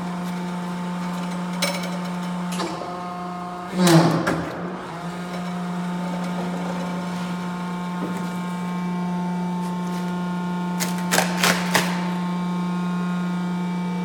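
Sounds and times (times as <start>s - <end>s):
die-cutting press humming: 0.0s - 14.0s.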